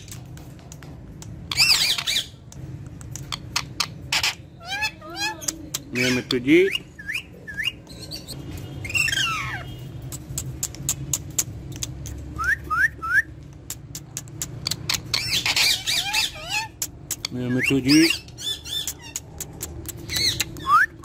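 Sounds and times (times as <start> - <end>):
parakeet chirps and squawks: 1.4 - 2.5, 3.1 - 12.4, 13.8 - 20.8
sharp little clicks: 18.7 - 21.0.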